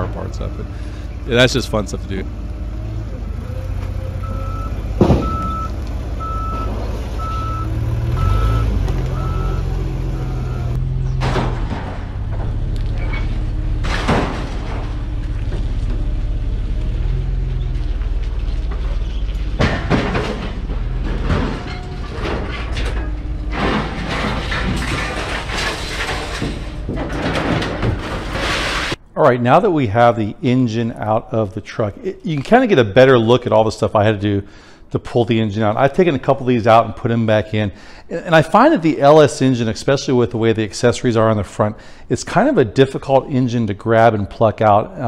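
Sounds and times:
forklift engine running: 0:00.0 - 0:29.2
reversing beeper: 0:04.2 - 0:10.8
metal clanks and bangs: 0:04.9 - 0:07.6, 0:10.2 - 0:29.1.

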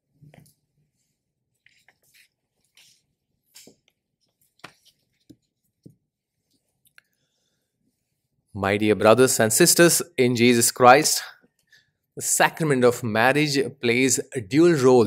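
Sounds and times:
book pages rustling: 0:01.6 - 0:06.8.

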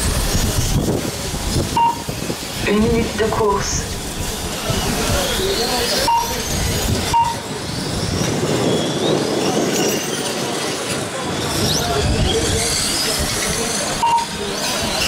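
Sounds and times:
electric motors whining: 0:00.0 - 0:15.0
short beeps: 0:01.8 - 0:02.1, 0:06.0 - 0:06.4, 0:07.1 - 0:07.5, 0:14.0 - 0:14.4.

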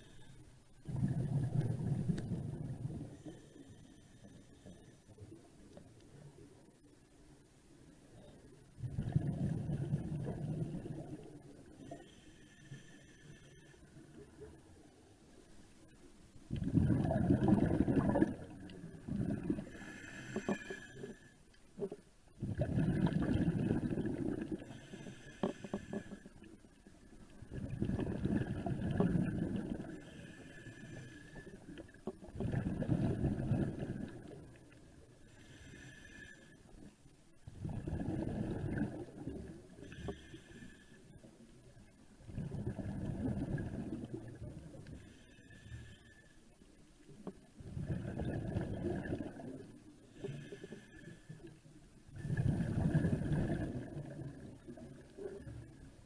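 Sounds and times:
bubbling regulator exhalations: 0:08.8 - 0:11.0, 0:16.5 - 0:21.1, 0:22.4 - 0:24.8, 0:27.5 - 0:30.3, 0:32.3 - 0:34.4, 0:37.5 - 0:40.2, 0:42.3 - 0:44.4, 0:47.6 - 0:49.6, 0:52.2 - 0:54.5.

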